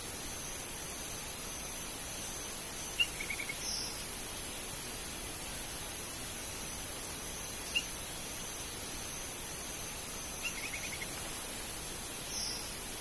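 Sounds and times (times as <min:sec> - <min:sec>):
high-pitched insect hiss: 0:00.0 - 0:13.0
bird chirps: 0:10.4 - 0:11.1.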